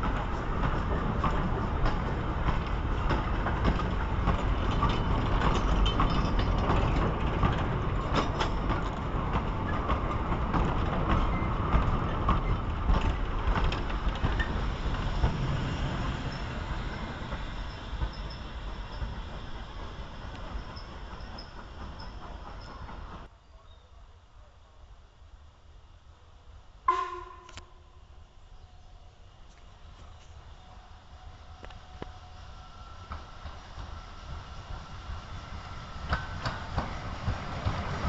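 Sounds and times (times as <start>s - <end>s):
train wheels clattering over rail joints: 0.0s - 23.3s, 33.0s - 38.0s.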